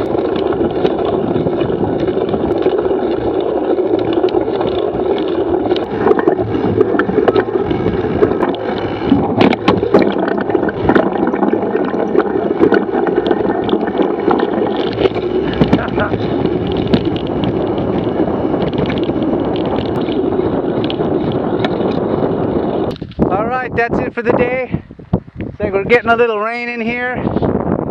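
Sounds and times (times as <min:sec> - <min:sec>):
bike rattling and knocking: 0:00.0 - 0:23.6
bike tyres crunching on dirt: 0:00.0 - 0:26.2
wind buffeting microphone: 0:00.0 - 0:27.9.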